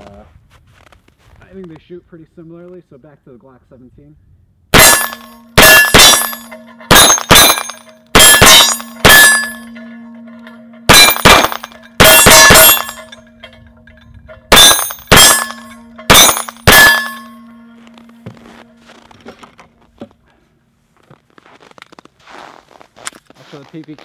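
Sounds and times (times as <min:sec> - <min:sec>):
pistol shots: 0:04.8 - 0:09.7, 0:10.9 - 0:13.1, 0:14.5 - 0:17.3
steel gong ringing: 0:04.8 - 0:13.6.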